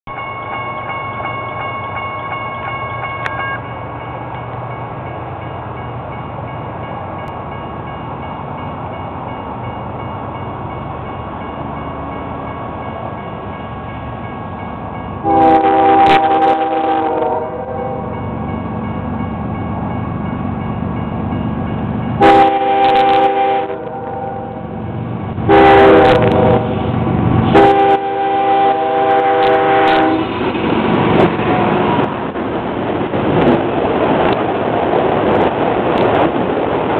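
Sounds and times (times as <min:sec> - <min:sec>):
crossing bell ringing: 0:00.1 - 0:26.4
locomotive rumble: 0:03.2 - 0:36.9
locomotive horn: 0:15.2 - 0:18.2, 0:22.2 - 0:24.6, 0:25.5 - 0:26.7, 0:27.5 - 0:30.3.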